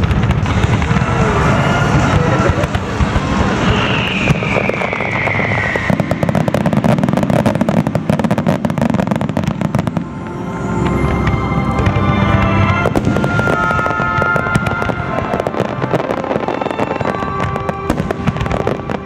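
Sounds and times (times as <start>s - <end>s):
fireworks crackling: 0.0s - 19.0s
high falling whistle: 3.4s - 7.6s, 11.0s - 18.8s.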